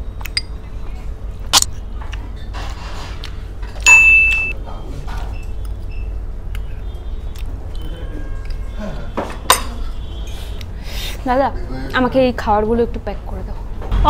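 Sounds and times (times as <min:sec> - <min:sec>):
steady low hum: 0:00.0 - 0:14.0
spoon clinking on glass bowl: 0:03.9 - 0:04.5.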